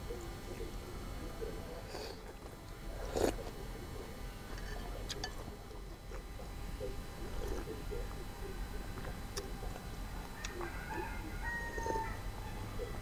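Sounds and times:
soft chewing and mouth sounds: 0.0s - 12.2s.

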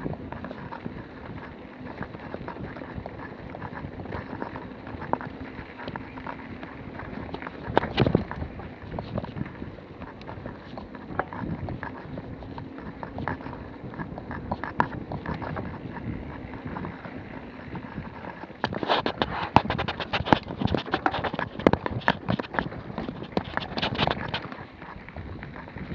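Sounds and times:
bike rattling over bumps: 0.0s - 25.9s
bike tyres on dirt: 0.0s - 25.9s.

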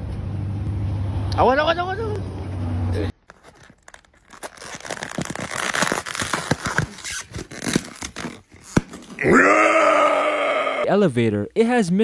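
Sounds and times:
crackling and crinkling: 3.1s - 9.4s.

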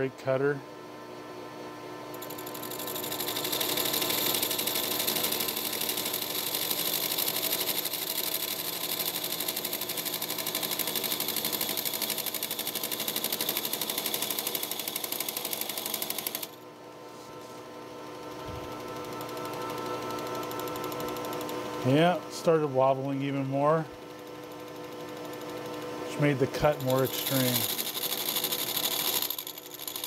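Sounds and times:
machine steady hum: 0.0s - 30.0s
lathe cutting metal scraping: 26.5s - 30.0s.

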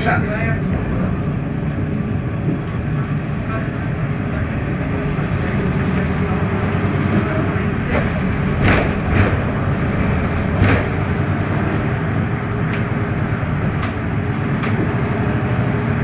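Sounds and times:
bus engine humming: 0.0s - 16.0s
short knocks and rattles: 7.8s - 11.4s.

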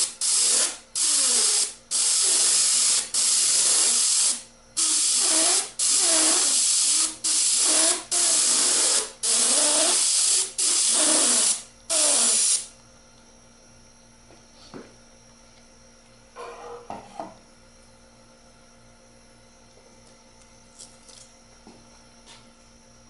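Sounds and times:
airbrush hissing bursts: 0.0s - 12.7s.

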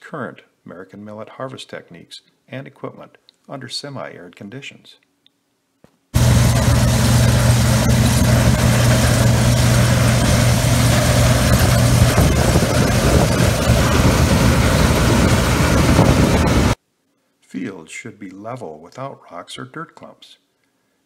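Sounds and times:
combine harvester machinery drone: 6.2s - 16.8s.

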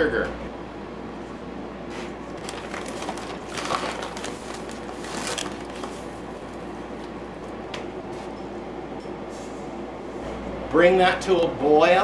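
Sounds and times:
paper bag rustling: 2.0s - 7.2s.

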